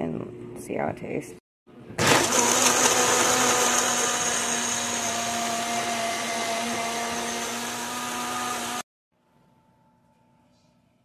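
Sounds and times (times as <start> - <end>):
blender motor whirring: 2.0 - 8.9.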